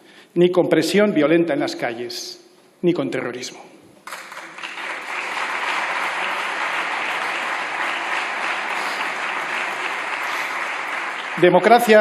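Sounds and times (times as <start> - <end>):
crowd applause: 4.1 - 12.0.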